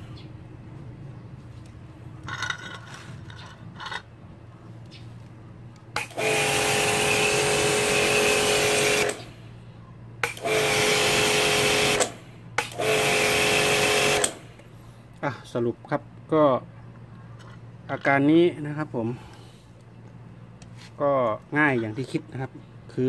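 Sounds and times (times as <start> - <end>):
pump whine: 5.9 - 9.5, 10.2 - 14.9
pressure washer motor humming: 6.0 - 9.4, 10.2 - 14.6.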